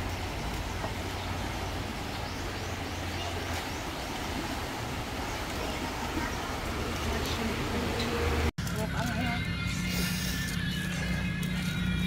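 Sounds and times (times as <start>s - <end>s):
river rushing with low rumble: 0.0s - 8.8s.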